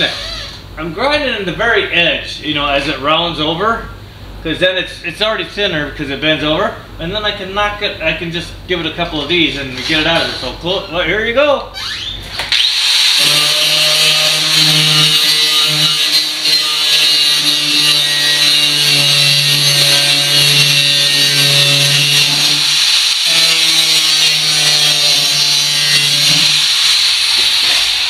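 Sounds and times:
angle grinder grinding steel: 0:11.8 - 0:28.0.

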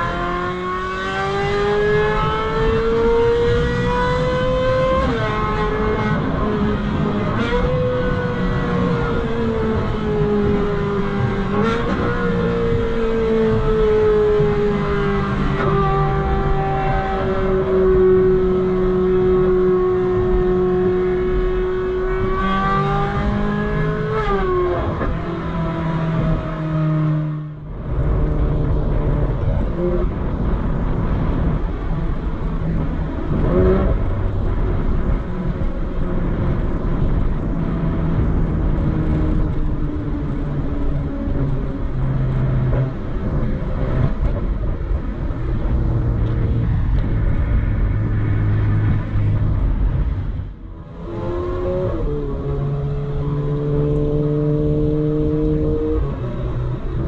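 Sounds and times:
car engine revving on the move: 0:00.0 - 0:57.0.

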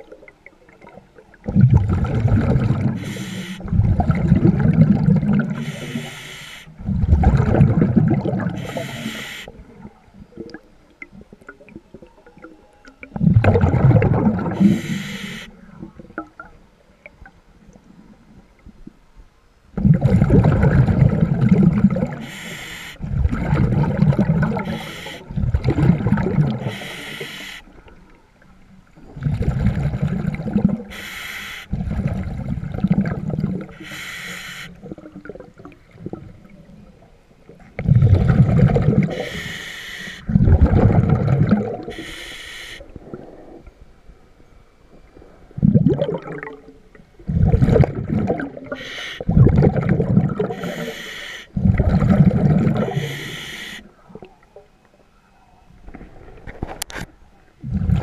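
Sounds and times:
exhaled air bubbling: 0:00.0 - 0:18.8, 0:19.7 - 0:28.1, 0:28.8 - 0:43.9, 0:45.0 - 0:54.7, 0:57.6 - 0:58.0
regulator hiss on inhale: 0:02.9 - 0:03.7, 0:05.5 - 0:06.8, 0:08.5 - 0:09.6, 0:14.6 - 0:15.8, 0:22.1 - 0:23.1, 0:24.6 - 0:25.3, 0:26.6 - 0:27.8, 0:30.9 - 0:31.8, 0:33.7 - 0:34.9, 0:39.1 - 0:40.4, 0:41.9 - 0:43.6, 0:48.7 - 0:49.3, 0:50.5 - 0:51.6, 0:52.8 - 0:54.0.

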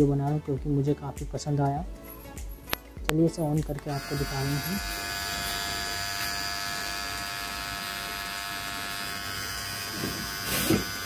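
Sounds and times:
beard trimmer motor whine: 0:03.8 - 0:11.0.

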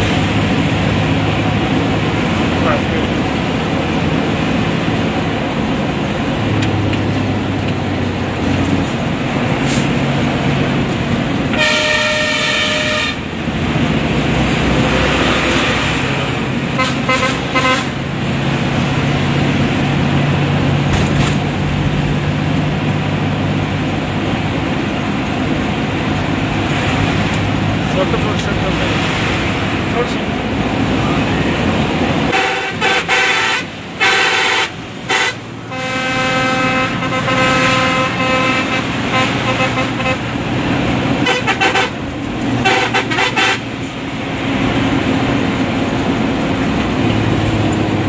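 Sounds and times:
bus engine: 0:00.0 - 0:48.0
road noise: 0:00.0 - 0:48.0
loud bus horn: 0:11.5 - 0:13.4, 0:16.7 - 0:18.1, 0:32.2 - 0:43.9.

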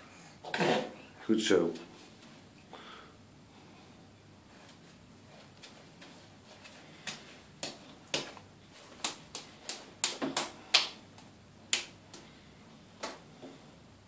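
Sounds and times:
wet hands slapping foam: 0:07.0 - 0:12.2.

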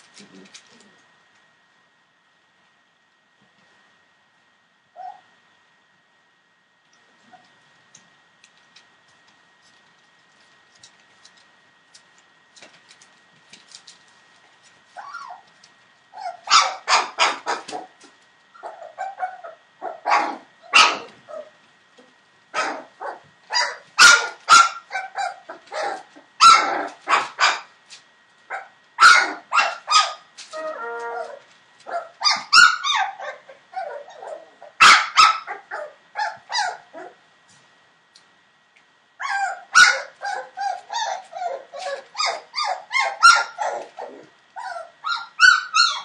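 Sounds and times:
puppy whining: 0:05.0 - 0:05.3, 0:14.9 - 0:27.6, 0:28.5 - 0:37.2, 0:39.2 - 0:46.0
puppies yapping: 0:15.0 - 0:15.5, 0:16.1 - 0:21.6, 0:22.6 - 0:27.7, 0:28.5 - 0:37.2, 0:39.2 - 0:46.0.

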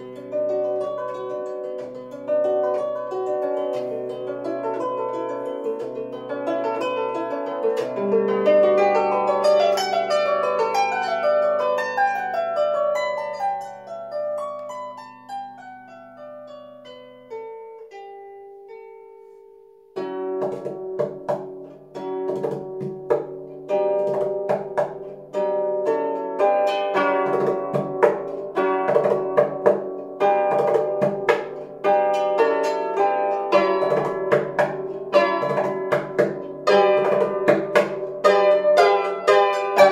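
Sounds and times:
harp plucked notes: 0:00.0 - 0:39.9.

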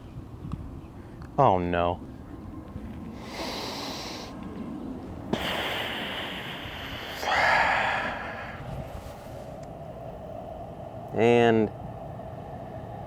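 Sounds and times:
person breathing out heavily: 0:03.2 - 0:04.4, 0:05.3 - 0:09.6.

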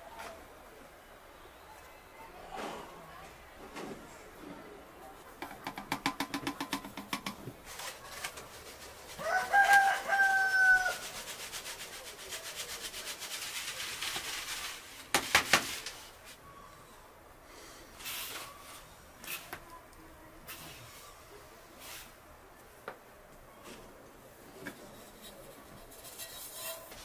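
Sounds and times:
knocks: 0:05.4 - 0:07.5
sieve tapping: 0:05.4 - 0:07.5
flour falling hiss: 0:07.6 - 0:16.2
rooster crowing: 0:09.2 - 0:11.2.

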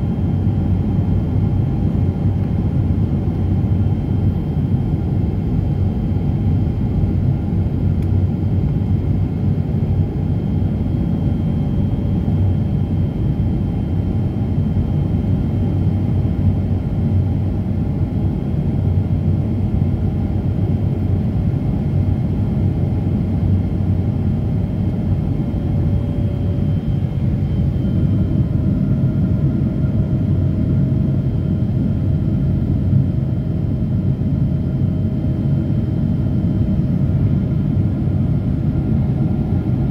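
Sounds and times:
airliner cabin rumble: 0:17.8 - 0:39.9.

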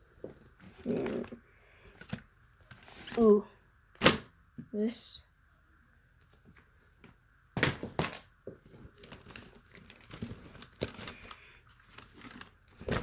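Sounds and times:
paper rustling and crinkling: 0:02.0 - 0:03.3, 0:08.7 - 0:13.0.

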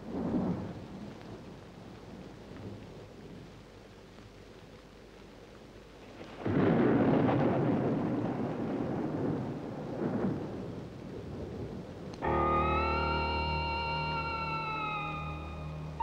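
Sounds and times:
faint steady hiss: 0:00.0 - 0:16.0
thunder clap and rumble: 0:06.4 - 0:15.3.

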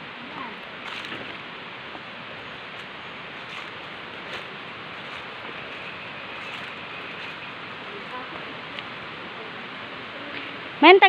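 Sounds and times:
rustling leaves and undergrowth: 0:00.0 - 0:10.8
steady rushing noise: 0:00.0 - 0:11.0
footsteps on forest trail: 0:00.5 - 0:09.0.

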